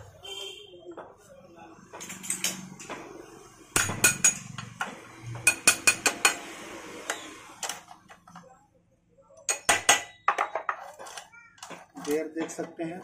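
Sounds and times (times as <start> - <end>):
steel rod tapping metal gears: 3.8 - 4.8.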